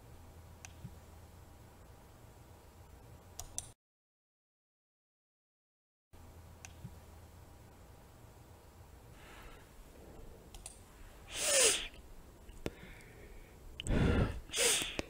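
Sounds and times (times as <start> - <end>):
person breathing: 9.1 - 12.0, 12.6 - 15.0
faint mouth clicks: 13.8 - 14.0, 14.6 - 15.0.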